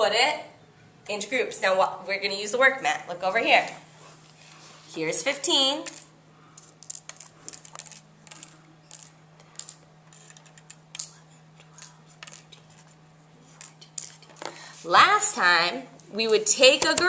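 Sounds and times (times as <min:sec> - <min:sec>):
paper clips clicking on paper: 0:06.6 - 0:12.5.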